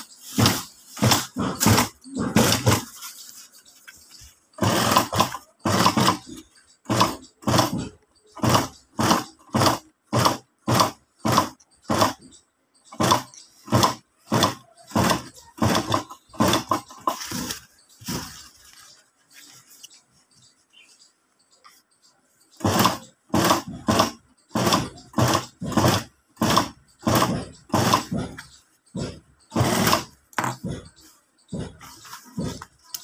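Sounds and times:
sewing machine stitching: 0.0 - 3.1, 4.6 - 12.3, 12.9 - 18.3, 22.6 - 28.4, 29.0 - 30.8.

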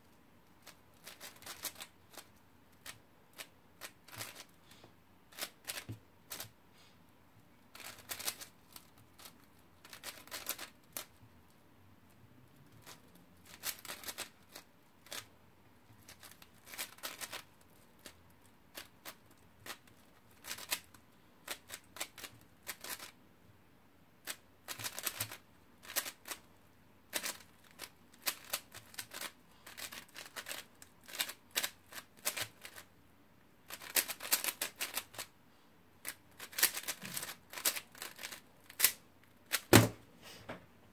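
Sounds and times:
plastic puzzle cube clicking: 0.6 - 4.5, 7.8 - 11.2, 12.8 - 15.3, 16.0 - 20.9, 21.5 - 23.2, 24.2 - 26.4, 27.1 - 32.8, 33.7 - 35.3, 36.0 - 39.7.

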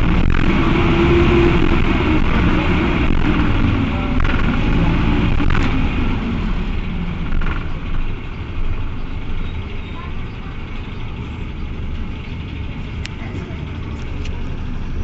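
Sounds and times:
diesel bus engine running: 0.0 - 15.0.

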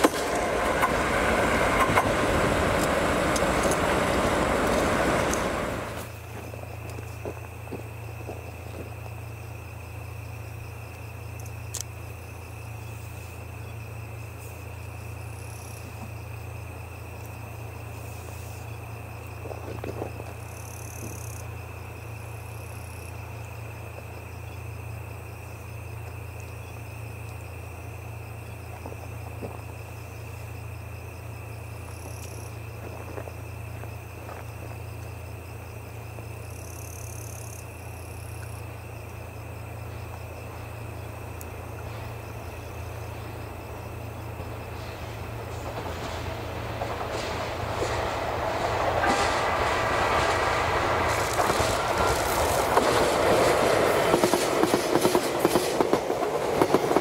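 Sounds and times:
insect chirps: 0.0 - 57.0
insects trilling: 0.0 - 57.0.

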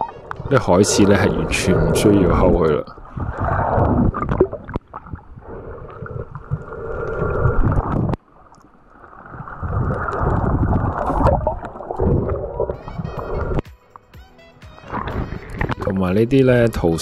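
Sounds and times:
underwater rumble of moving water: 0.0 - 13.6.

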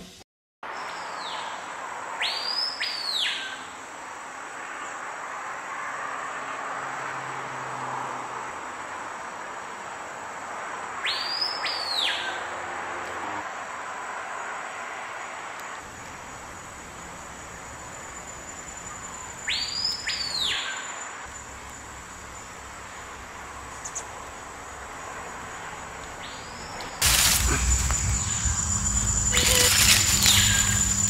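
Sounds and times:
high insect tone: 15.8 - 26.4, 27.0 - 31.0
rising and falling bird calls: 26.3 - 31.0
rustling and handling noise: 27.0 - 31.0.

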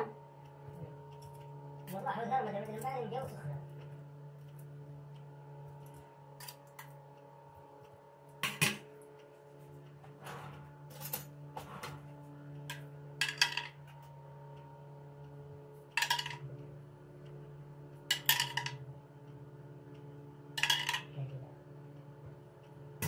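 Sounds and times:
steady low hum: 0.0 - 23.0
utensil clinking on a dish: 20.6 - 21.1.

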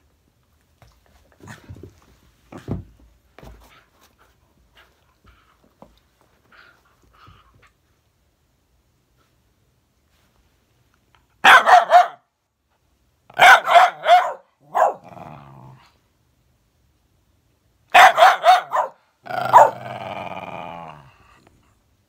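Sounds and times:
dog barking: 11.4 - 12.3, 13.4 - 15.1, 17.9 - 19.8
dog growling: 14.6 - 16.0, 19.2 - 21.7
dog growling howl: 14.9 - 15.8, 19.3 - 21.5.

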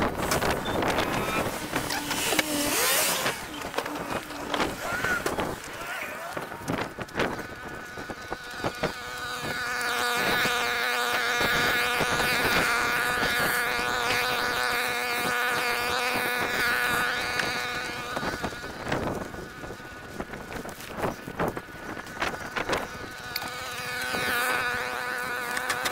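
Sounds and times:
branches rustling and dragging: 0.0 - 9.9, 17.3 - 24.4
small engine droning: 0.0 - 25.9.

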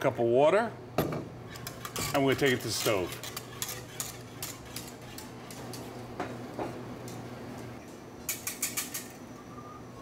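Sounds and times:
steady low hum: 0.7 - 10.0
metal pot scraping: 1.4 - 5.7.

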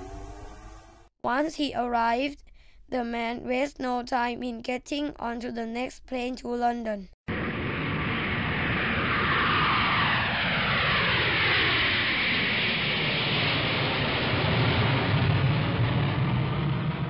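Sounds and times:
jet airliner flying past: 0.0 - 1.1, 7.3 - 17.0
deep rumble: 7.3 - 17.0.

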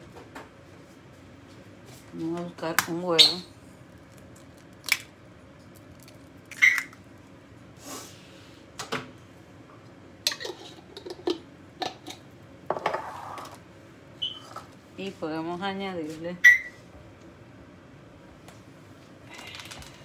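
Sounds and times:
egg cracking into plastic bowl: 4.0 - 7.0.

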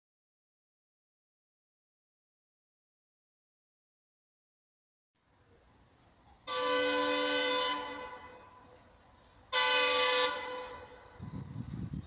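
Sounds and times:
locomotive air horn blasts: 6.4 - 8.6, 9.5 - 11.2.

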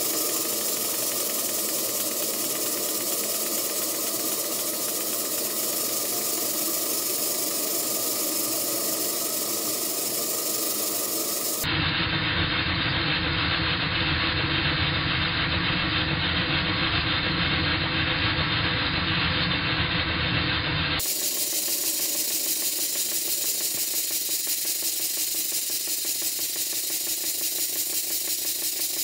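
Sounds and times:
steam engine running: 0.0 - 11.7, 13.6 - 29.0
steam hissing: 0.0 - 11.7, 21.0 - 29.0.

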